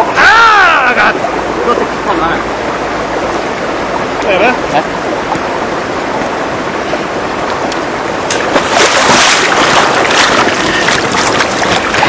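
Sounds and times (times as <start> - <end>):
river water rushing: 0.0 - 12.0
splashing from wading: 6.4 - 12.0.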